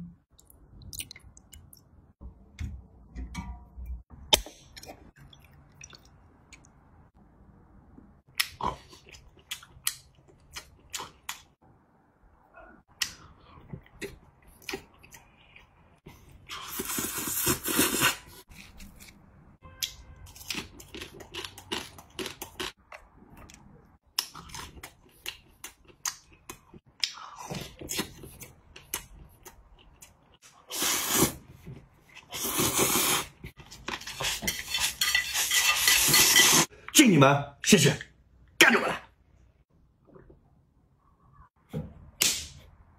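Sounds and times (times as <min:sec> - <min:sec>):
slurping noodles: 0:16.4 - 0:18.5, 0:30.6 - 0:31.5, 0:32.2 - 0:36.7.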